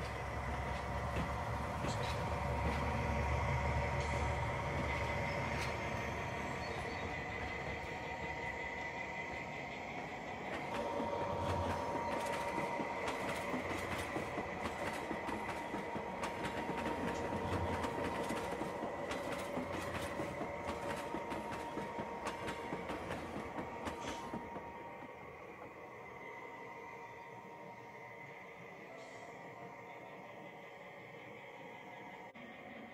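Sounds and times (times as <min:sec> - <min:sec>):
wheels clicking over rail joints: 0:00.0 - 0:07.6, 0:10.3 - 0:24.9.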